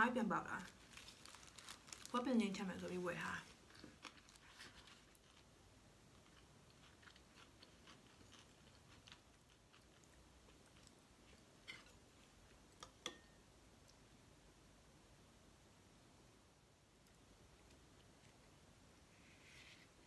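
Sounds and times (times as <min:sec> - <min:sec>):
faint clicks of food handling: 0:03.7 - 0:05.5
metal spoon tapping ceramic bowl: 0:12.8 - 0:13.4.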